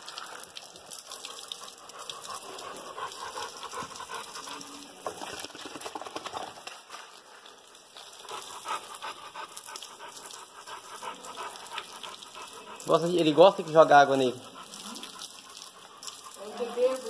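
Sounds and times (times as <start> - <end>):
water spattering on tiled floor: 0.0 - 17.0
dog panting: 0.3 - 7.1, 8.0 - 17.0.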